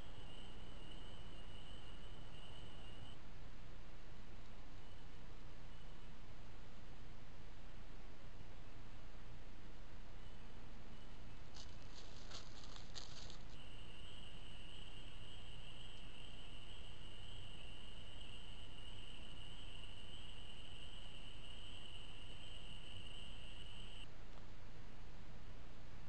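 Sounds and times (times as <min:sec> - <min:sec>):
night chorus of calling animals: 0:00.0 - 0:03.2, 0:10.2 - 0:24.1
microphone hiss: 0:00.0 - 0:26.0
short scratchy rustles: 0:11.5 - 0:13.6.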